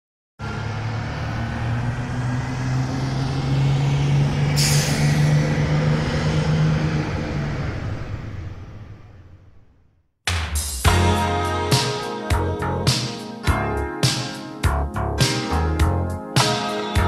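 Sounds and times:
bus engine droning: 0.4s - 9.9s
air-brake hiss: 4.6s - 5.3s.

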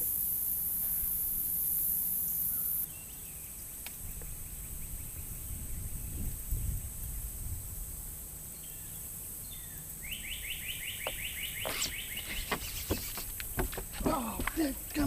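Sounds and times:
bird trilling: 10.0s - 13.3s
sharp knocks: 11.0s - 14.7s.

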